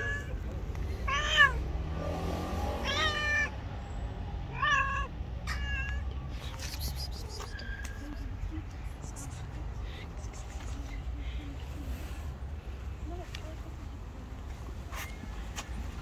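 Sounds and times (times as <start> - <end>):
cat meowing: 0.0 - 0.4, 1.0 - 1.6, 2.8 - 3.5, 4.5 - 6.1.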